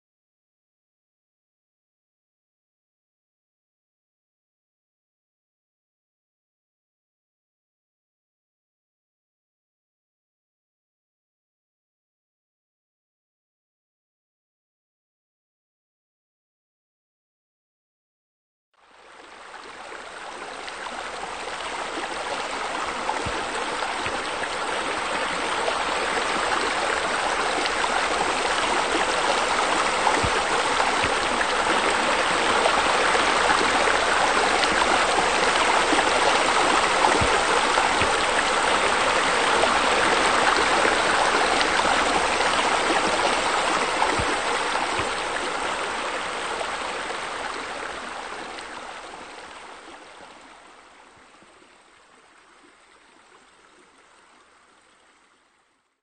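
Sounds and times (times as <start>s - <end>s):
running splashing water: 19.5s - 50.2s.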